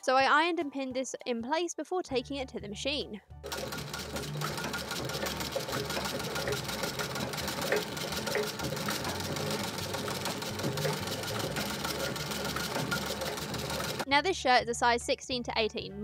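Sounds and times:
treadle sewing machine stitching: 0:03.4 - 0:14.1.

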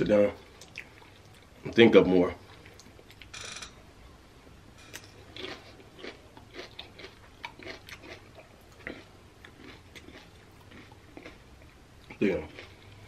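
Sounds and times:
person chewing crunchy chips: 0:04.8 - 0:13.0.

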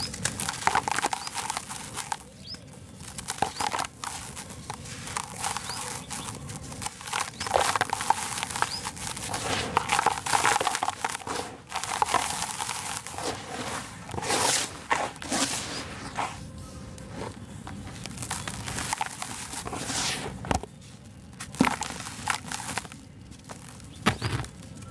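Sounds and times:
gritty lumps crunching by hand: 0:00.0 - 0:24.9
sand sifting: 0:00.0 - 0:24.9.

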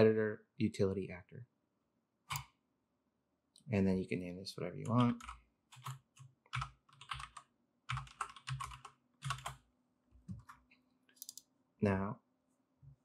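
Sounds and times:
computer keyboard typing: 0:04.8 - 0:09.6, 0:10.3 - 0:11.4.

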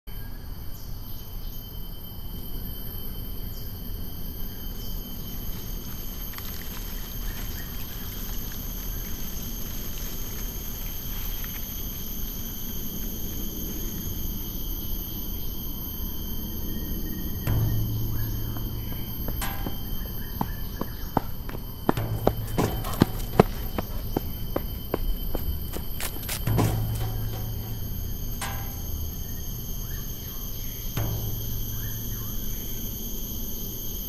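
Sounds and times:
low rumbling noise: 0:15.3 - 0:34.0.

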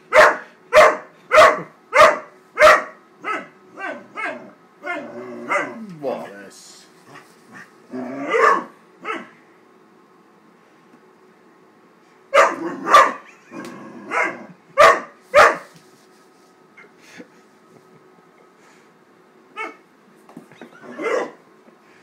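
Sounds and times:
puppy barking: 0:00.1 - 0:05.8, 0:08.3 - 0:09.3, 0:12.3 - 0:13.3, 0:14.1 - 0:15.7, 0:19.6 - 0:19.8, 0:20.8 - 0:21.4.

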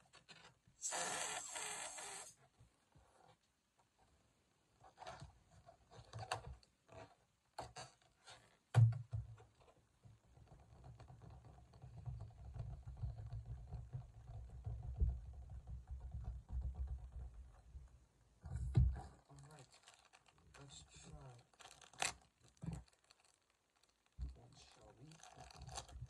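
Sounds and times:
balloon rubbing against microphone: 0:00.8 - 0:02.4
balloon squeaks and rustles: 0:00.8 - 0:02.4
thump: 0:18.5 - 0:19.0.

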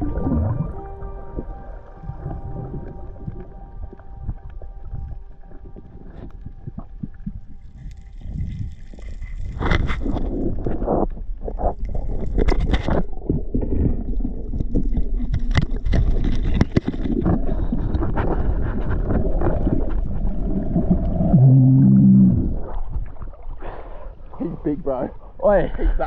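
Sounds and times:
loud low droning tone: 0:00.0 - 0:07.8
underwater bubbling: 0:00.0 - 0:25.4
muffled underwater rumble: 0:00.0 - 0:26.0.

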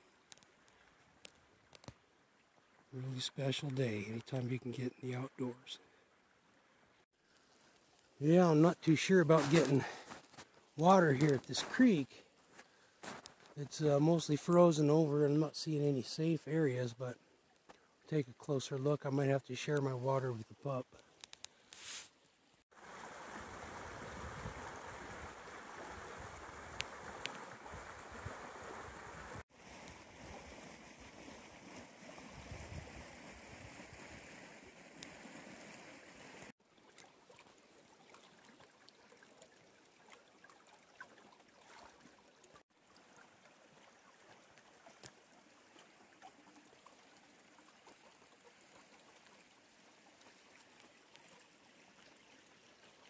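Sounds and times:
creek water rushing: 0:07.4 - 0:13.0, 0:22.7 - 0:53.0.

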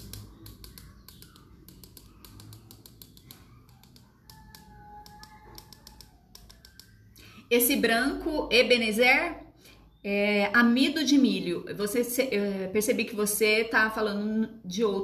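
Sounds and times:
paintbrush tapping: 0:00.0 - 0:07.2.

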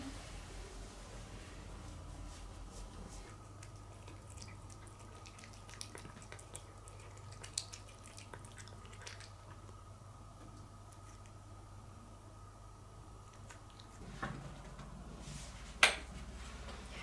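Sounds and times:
faint steady hum: 0:00.0 - 0:17.0
cat chewing and licking: 0:03.0 - 0:11.7, 0:13.2 - 0:14.5.

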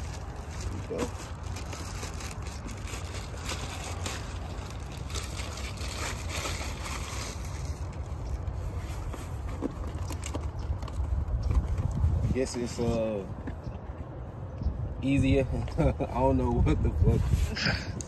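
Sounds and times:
plastic mailer bag crinkling: 0:00.0 - 0:08.5.

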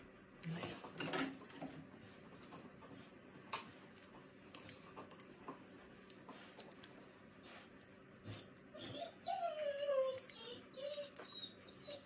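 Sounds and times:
scissors snipping hair: 0:03.5 - 0:05.3, 0:09.6 - 0:12.0.

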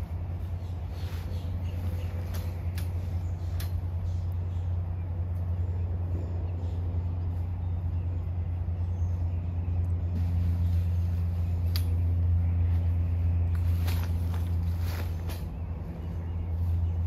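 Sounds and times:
steady low hum: 0:00.0 - 0:17.0
tent frame clicks and rattles: 0:12.8 - 0:15.8.

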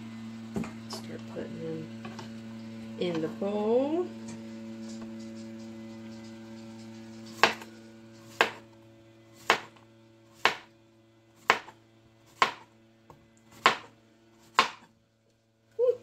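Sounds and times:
knife chopping on plastic board: 0:07.3 - 0:07.7, 0:08.3 - 0:08.7, 0:09.4 - 0:09.8, 0:10.4 - 0:10.7, 0:11.4 - 0:12.7, 0:13.5 - 0:14.9.

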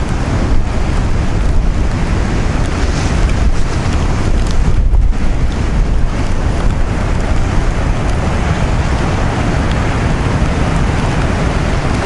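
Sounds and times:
storm surf on rocky shore: 0:00.0 - 0:12.0
wind buffeting the microphone: 0:00.0 - 0:12.0.

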